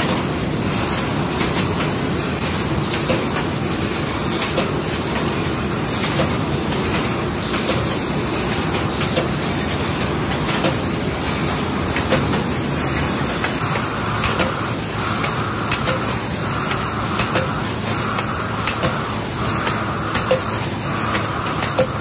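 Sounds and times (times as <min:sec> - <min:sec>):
machine hissing: 0:00.0 - 0:22.0
machine knocking: 0:00.0 - 0:22.0
machine din: 0:13.5 - 0:22.0.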